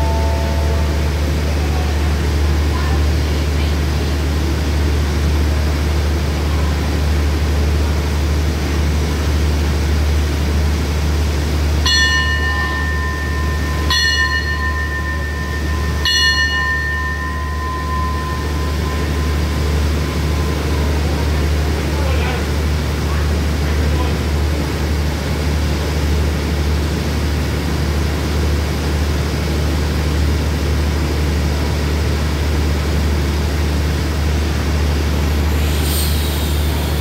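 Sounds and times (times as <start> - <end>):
bell ringing: 0.0 - 1.4, 11.8 - 22.2
low hum of idling train: 0.0 - 37.0.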